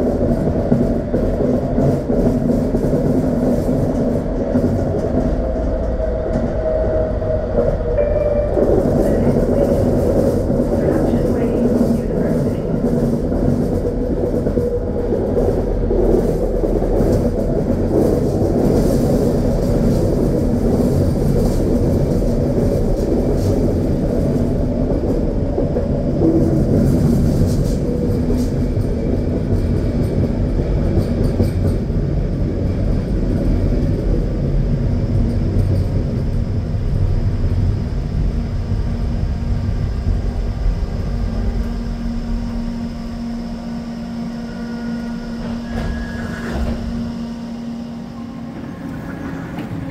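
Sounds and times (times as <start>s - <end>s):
steady low hum: 0.0s - 49.9s
train wheels rumbling on rails: 0.0s - 49.9s.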